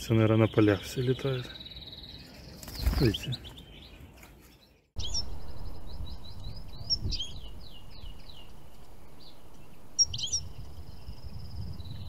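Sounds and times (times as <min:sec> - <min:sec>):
songbird singing: 0:00.0 - 0:12.0
low background rumble: 0:05.0 - 0:12.0.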